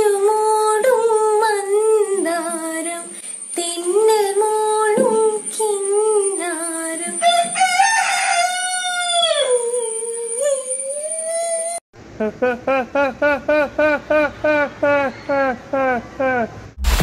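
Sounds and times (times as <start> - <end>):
girl singing: 0.0 - 7.8, 9.0 - 11.8.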